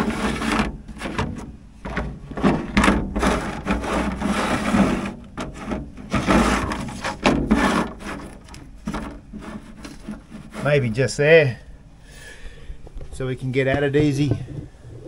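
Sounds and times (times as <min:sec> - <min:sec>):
plastic box scraping on floor: 0:00.0 - 0:10.8.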